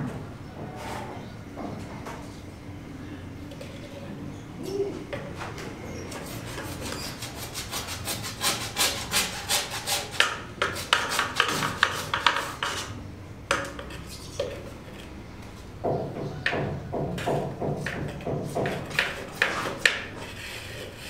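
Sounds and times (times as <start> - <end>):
hand sanding strokes: 6.1 - 13.0, 17.8 - 21.0.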